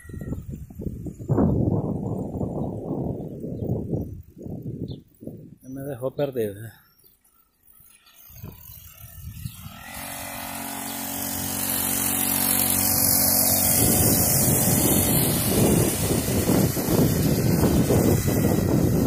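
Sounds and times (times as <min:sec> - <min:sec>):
mini dirt bike motor running: 0:00.0 - 0:05.4, 0:06.8 - 0:19.0
rough rumbling noise: 0:08.3 - 0:19.0.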